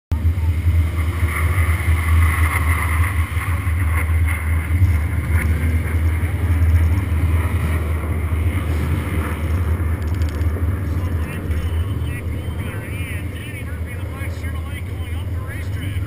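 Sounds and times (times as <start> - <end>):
wind on microphone: 0.1 - 16.0
car engine idling: 9.5 - 16.0.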